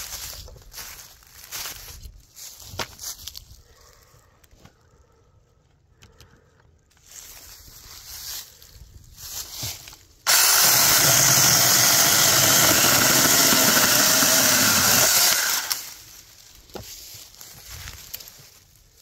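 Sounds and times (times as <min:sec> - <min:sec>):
rustling in dry leaves: 0:00.0 - 0:04.3, 0:06.9 - 0:12.2, 0:13.4 - 0:19.0
mini chainsaw cutting log: 0:10.3 - 0:16.0.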